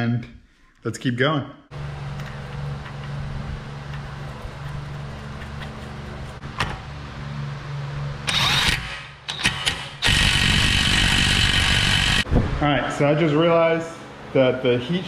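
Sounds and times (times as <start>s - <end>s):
steady low hum: 1.6s - 8.3s
power tool whining: 8.2s - 12.2s.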